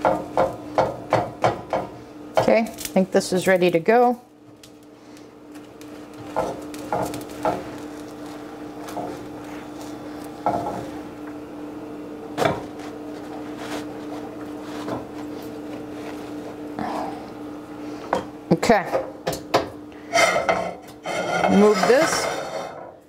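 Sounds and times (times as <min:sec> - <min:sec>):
steady low hum: 0:00.0 - 0:23.0
spatula scraping frying pan: 0:20.1 - 0:22.8.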